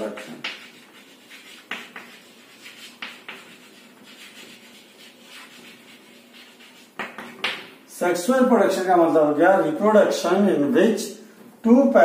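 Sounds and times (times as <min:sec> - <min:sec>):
chalk scratching on blackboard: 0:00.0 - 0:07.7.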